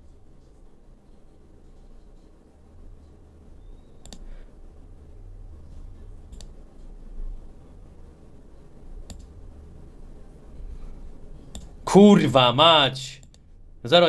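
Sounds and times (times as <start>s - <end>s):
low steady hum: 0.0s - 14.0s
computer mouse clicks: 4.0s - 4.3s, 6.3s - 6.9s, 9.0s - 9.4s, 11.5s - 11.8s.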